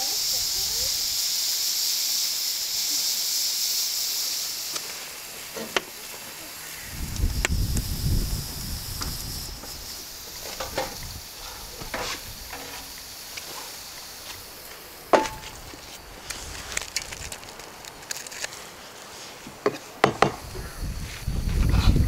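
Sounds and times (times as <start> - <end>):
faint hiss: 0.0 - 22.0
sharp wooden knocks and clicks: 19.6 - 20.4.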